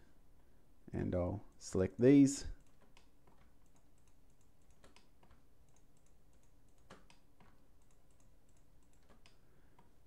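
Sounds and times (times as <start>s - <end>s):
mouse and keyboard clicks: 2.6s - 9.9s.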